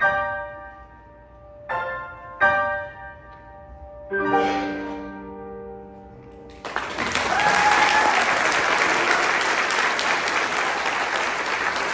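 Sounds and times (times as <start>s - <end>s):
audience applauding: 6.5s - 11.9s
crowd cheer: 6.7s - 11.9s.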